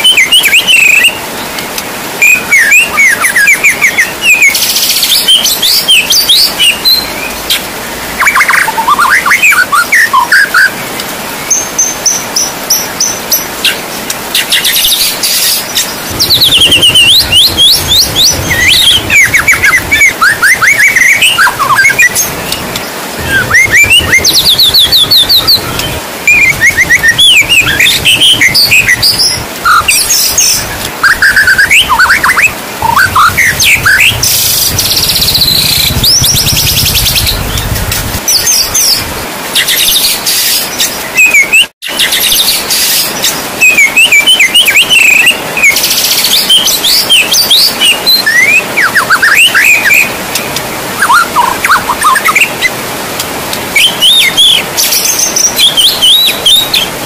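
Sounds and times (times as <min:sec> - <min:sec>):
bird singing whistles and trills: 0:00.0 - 0:01.4, 0:02.2 - 0:10.8, 0:11.4 - 0:52.7, 0:53.8 - 0:57.0
falling rain hiss: 0:10.6 - 0:40.9.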